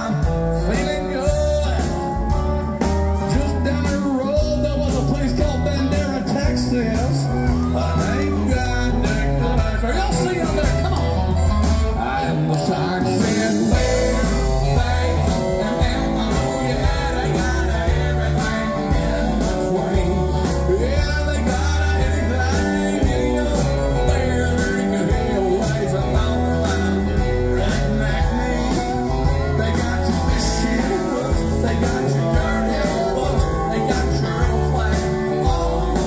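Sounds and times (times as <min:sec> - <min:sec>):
drum beat: 0:00.0 - 0:12.0, 0:12.6 - 0:36.0
bass line: 0:00.0 - 0:36.0
electric guitars: 0:00.0 - 0:36.0
pedal steel guitar: 0:00.0 - 0:36.0
person singing: 0:00.0 - 0:36.0.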